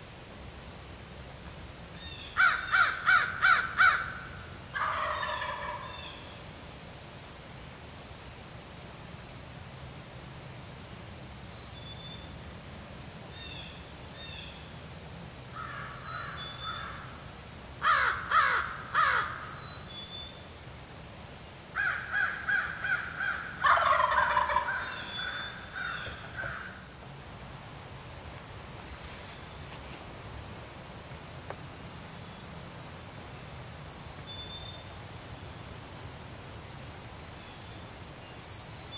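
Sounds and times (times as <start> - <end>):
songbirds chirping: 0.7 - 6.7, 7.9 - 38.9
turkey gobbling: 4.8 - 6.0, 22.3 - 26.7.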